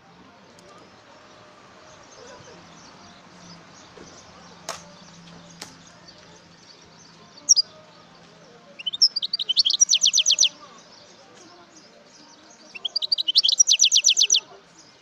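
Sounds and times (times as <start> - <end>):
finch calling: 7.4 - 7.7, 8.8 - 10.6, 12.7 - 14.5.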